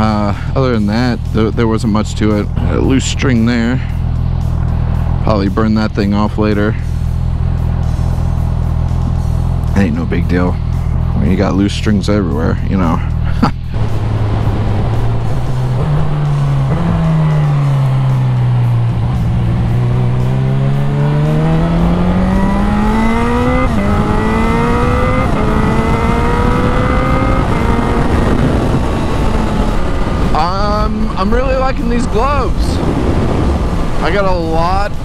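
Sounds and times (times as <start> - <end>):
motorcycle engine accelerating: 0.0 - 35.0
wind on microphone: 23.7 - 35.0.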